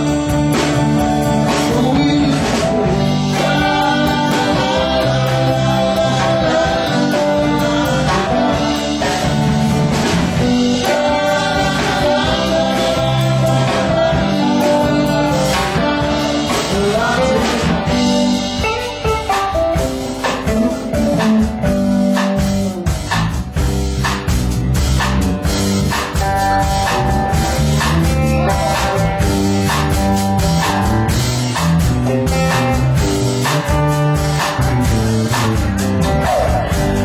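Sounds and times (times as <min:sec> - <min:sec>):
bass line: 0:00.0 - 0:37.0
electric guitars: 0:00.0 - 0:37.0
keyboard: 0:00.0 - 0:37.0
lead vocal: 0:01.2 - 0:21.9, 0:34.6 - 0:37.0.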